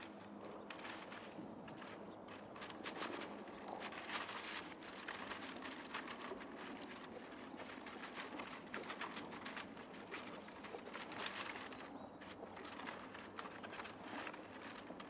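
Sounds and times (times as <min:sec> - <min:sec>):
leaf litter crackling and rustling: 0:00.0 - 0:15.0.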